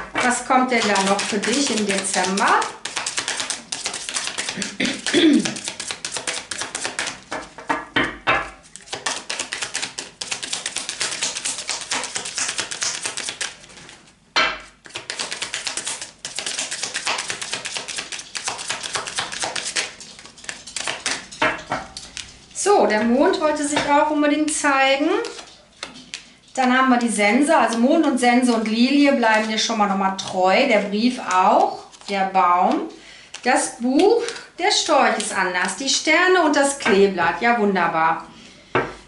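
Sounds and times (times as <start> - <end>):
cards being shuffled: 0.8 - 7.4, 8.8 - 14.0, 14.8 - 21.3, 22.0 - 22.4, 25.2 - 26.3, 31.2 - 32.1.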